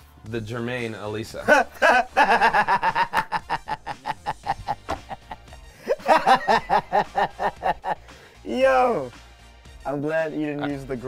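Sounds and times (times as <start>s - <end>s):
man laughing hard: 1.4s - 8.0s.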